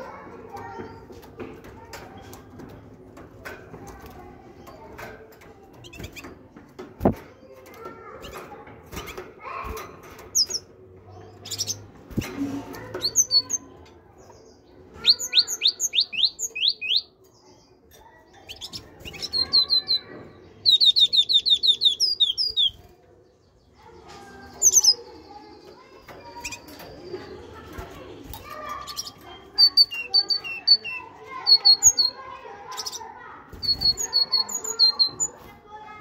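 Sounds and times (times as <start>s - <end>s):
high bird chirps: 9.0s - 17.7s, 18.3s - 22.8s, 23.5s - 35.4s
bird singing repeated notes: 15.0s - 17.4s, 18.4s - 22.8s, 28.3s - 35.4s.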